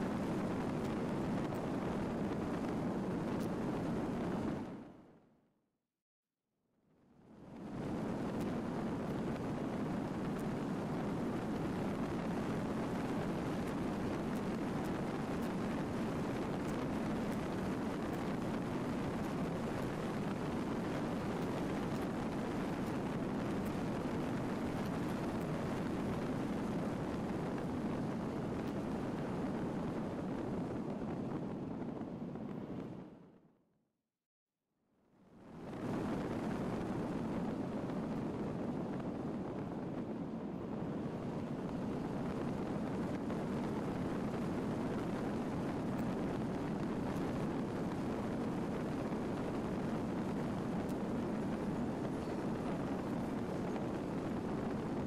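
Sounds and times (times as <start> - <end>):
faint ticks: 3.3 - 3.6, 13.6 - 15.7.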